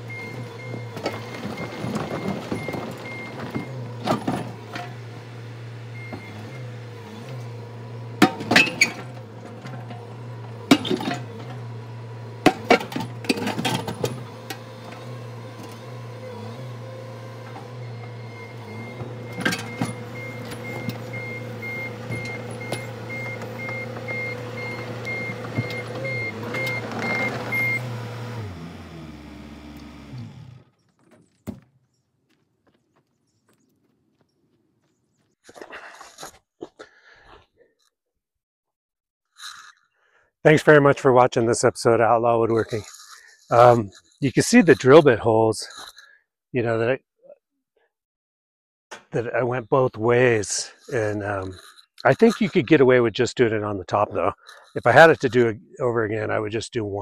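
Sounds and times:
diesel engine running: 0.0s - 30.9s, 49.2s - 56.6s
bucket scraping on dirt and rocks: 0.3s - 5.1s, 7.4s - 15.0s, 17.2s - 28.3s, 50.5s - 52.7s
warning alarm beeping: 17.8s - 28.0s.

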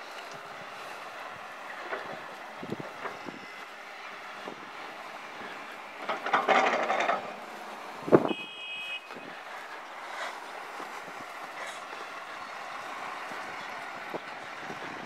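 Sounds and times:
short high beep: 8.3s - 9.1s.

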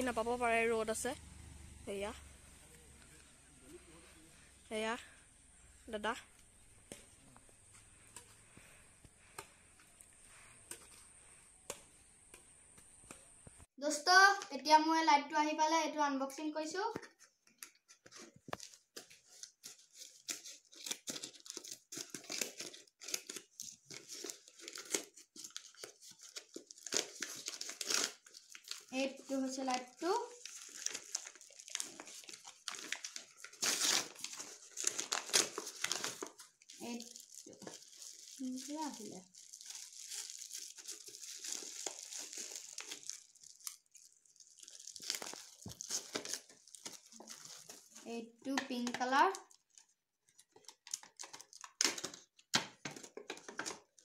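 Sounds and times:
plastic crinkling and rustling: 17.1s - 54.0s
scissors cutting plastic packet: 17.5s - 48.0s, 48.6s - 54.0s.

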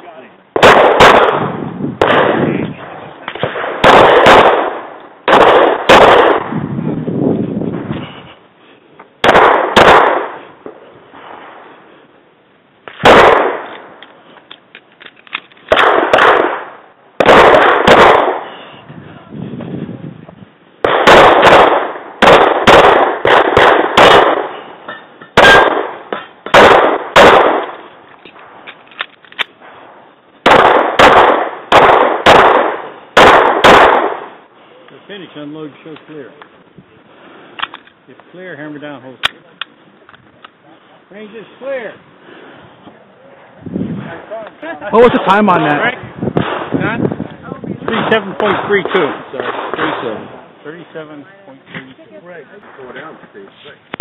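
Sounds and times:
pistol shots with echo: 0.5s - 6.6s, 9.2s - 10.8s, 13.0s - 13.9s, 15.7s - 18.6s, 20.8s - 24.7s, 25.4s - 27.9s, 30.4s - 34.4s, 45.2s - 46.8s, 47.8s - 50.2s.

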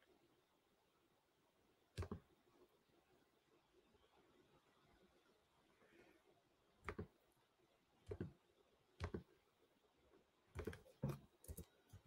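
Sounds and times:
computer mouse clicking: 2.0s - 2.3s, 6.8s - 7.2s, 8.0s - 8.4s, 9.0s - 9.4s, 10.6s - 12.0s.

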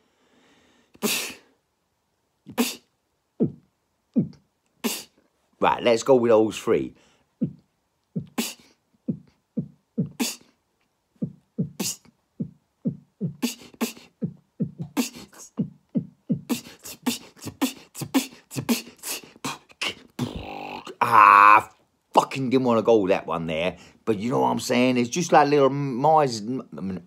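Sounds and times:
man beatboxing: 2.5s - 5.2s, 7.4s - 10.6s, 11.2s - 22.4s.

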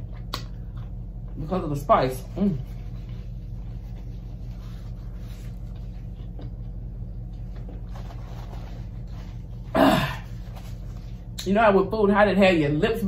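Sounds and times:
mains electrical hum: 0.0s - 13.0s.

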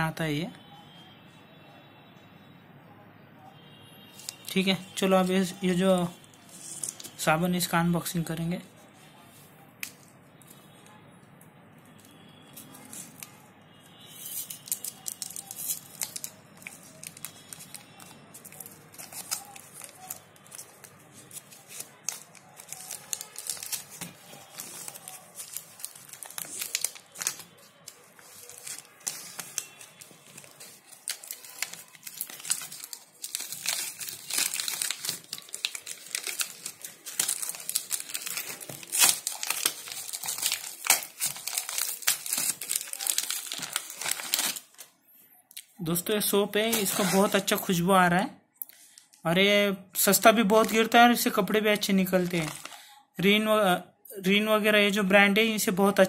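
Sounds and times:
paper wrapper crinkling: 4.2s - 8.3s, 14.2s - 45.0s, 46.6s - 47.7s, 50.0s - 52.9s.

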